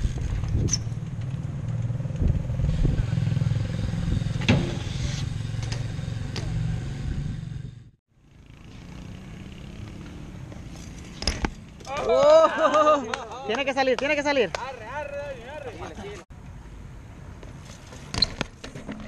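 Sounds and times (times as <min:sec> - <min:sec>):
bike tyres rolling over concrete: 0:08.5 - 0:15.1.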